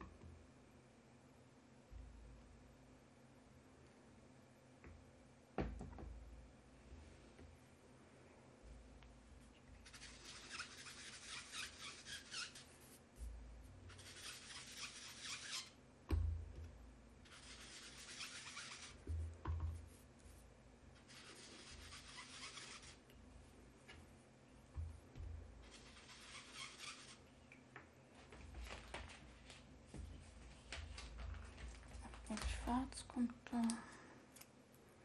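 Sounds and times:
sponge rubbing on cardstock: 0:09.8 - 0:13.3, 0:13.9 - 0:15.8, 0:17.2 - 0:19.0, 0:19.8 - 0:23.0, 0:25.6 - 0:27.2.

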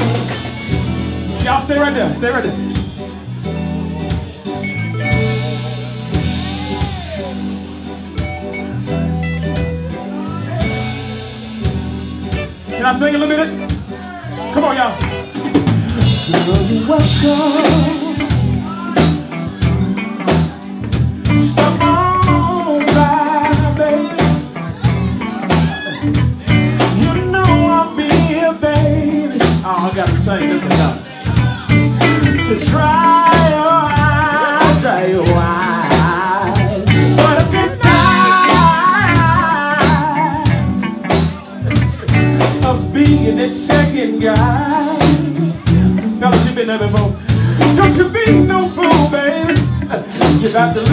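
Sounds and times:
drum kit beat: 0:00.0 - 0:50.9
electric bass: 0:00.0 - 0:50.9
electric guitar: 0:00.0 - 0:50.9
man singing: 0:03.8 - 0:50.9.

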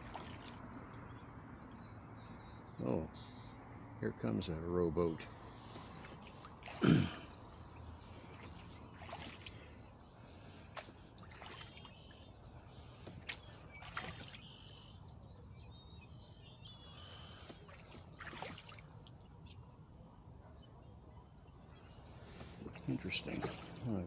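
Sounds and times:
oars splashing in water: 0:00.0 - 0:01.1, 0:05.2 - 0:15.0, 0:16.8 - 0:19.6, 0:22.1 - 0:24.0
faint high bird chirps: 0:11.2 - 0:18.5.

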